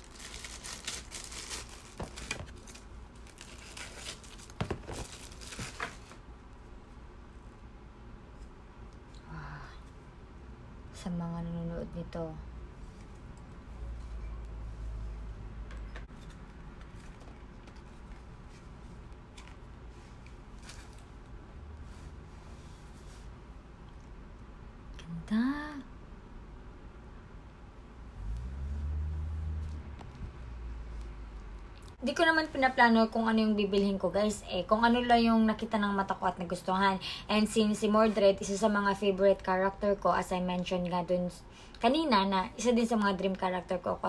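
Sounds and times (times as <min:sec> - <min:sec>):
plastic bag crinkling: 0:00.0 - 0:06.2
plastic rustling: 0:00.0 - 0:06.2, 0:16.1 - 0:21.2.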